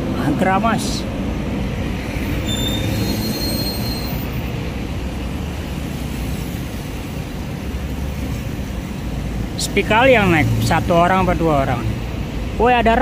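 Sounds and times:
road traffic engine rumble: 0.0s - 13.0s
thin high squeal: 2.4s - 4.4s.

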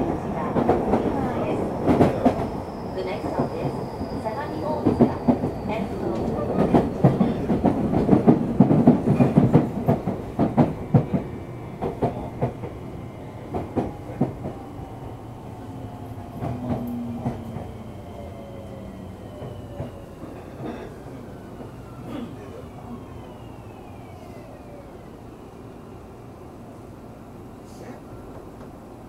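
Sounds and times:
train wheels clattering over rails: 0.0s - 12.8s.

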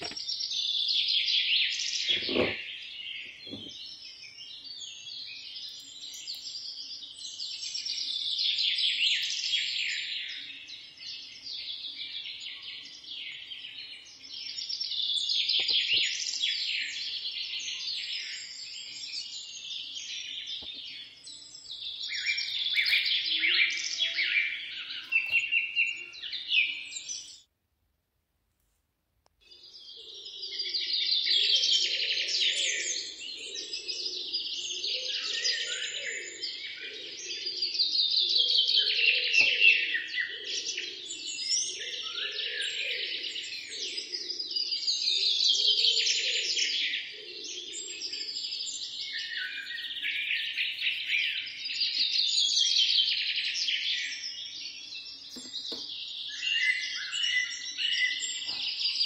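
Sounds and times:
birds chirping and twittering: 0.0s - 27.5s, 29.4s - 59.0s.

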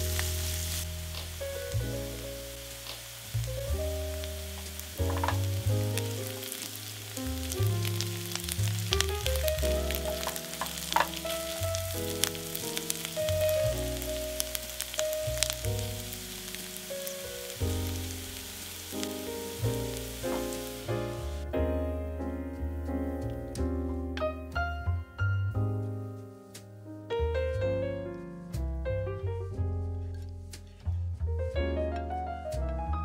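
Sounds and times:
onions sizzling in a frying pan: 0.0s - 21.4s.

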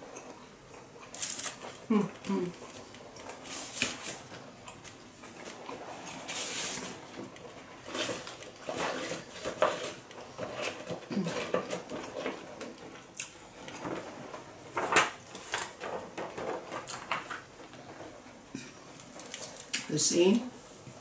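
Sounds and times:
person chewing: 0.0s - 9.3s.

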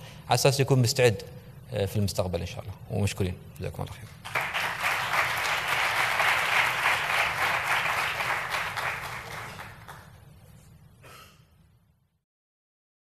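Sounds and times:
audience applauding: 4.2s - 10.2s.

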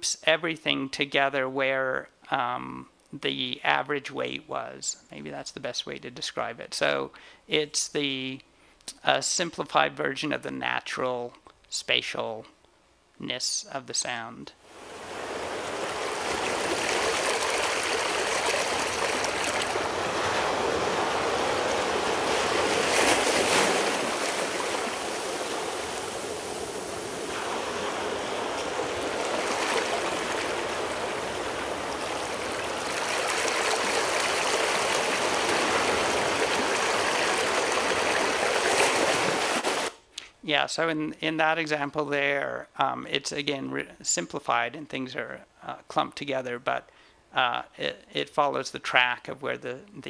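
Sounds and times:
ocean waves surf: 14.6s - 39.9s.

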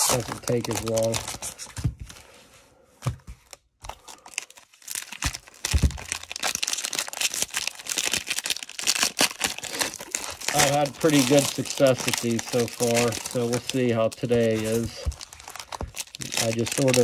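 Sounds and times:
cellophane wrapper crinkling and tearing: 0.0s - 1.8s, 3.4s - 17.0s.

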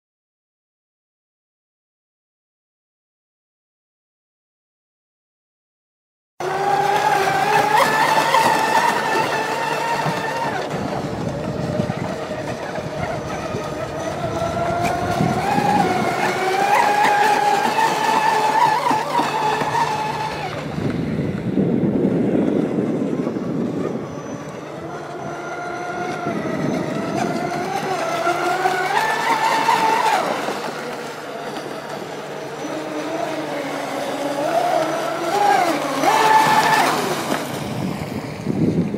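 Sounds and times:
electric motor whine: 6.4s - 38.9s.

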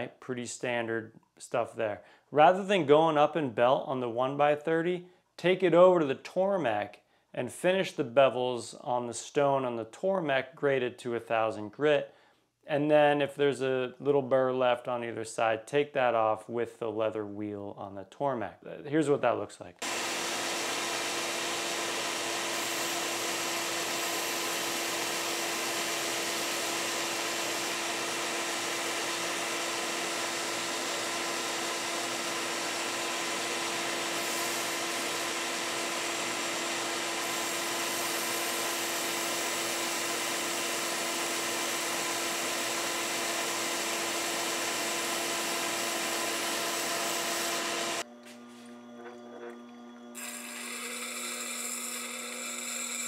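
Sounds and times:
belt sander humming: 19.8s - 53.0s
steel wheel grinding on belt: 48.6s - 53.0s.

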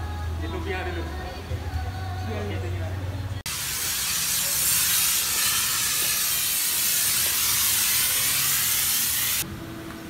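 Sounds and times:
foam sprayer hissing: 3.5s - 9.4s.

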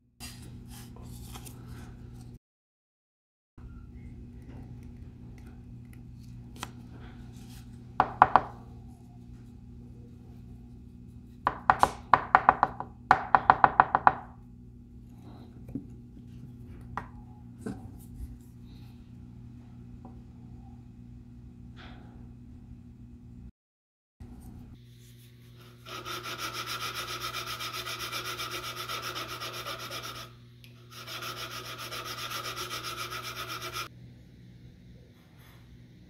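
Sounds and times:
steady low hum: 3.6s - 12.3s, 14.2s - 23.5s.

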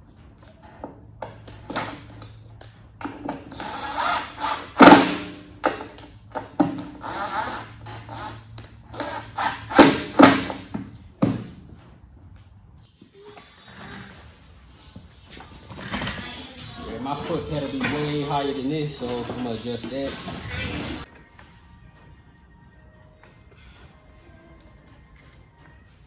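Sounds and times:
cordless drill driving screws: 3.5s - 4.9s.

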